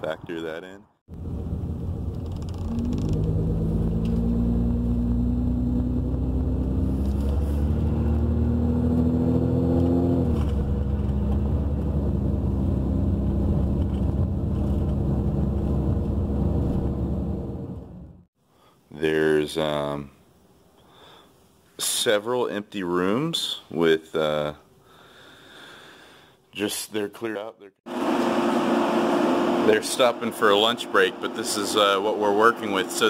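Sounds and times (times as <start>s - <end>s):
car engine: 1.1s - 18.3s, 27.9s - 33.0s
road noise inside car: 1.2s - 18.2s.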